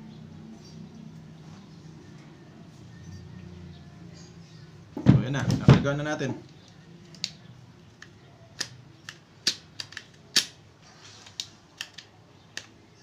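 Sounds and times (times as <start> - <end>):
airgun clicks and pops: 6.5 - 7.4, 8.0 - 10.6.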